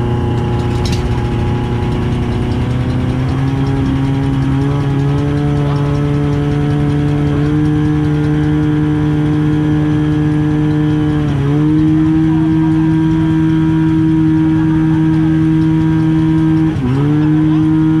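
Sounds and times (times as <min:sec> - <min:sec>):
pump engine running loud: 0:00.0 - 0:18.0.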